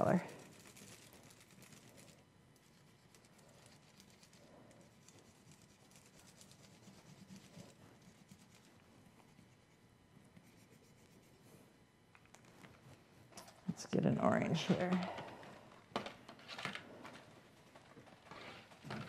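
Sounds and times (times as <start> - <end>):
marker scratching on foil: 0.0 - 11.5.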